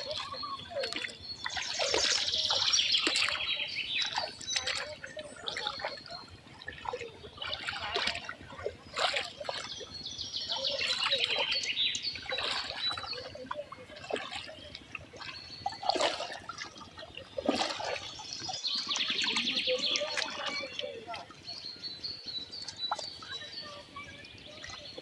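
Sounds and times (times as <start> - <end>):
birds chirping: 0.0 - 25.0
water splashing and sloshing: 0.0 - 25.0.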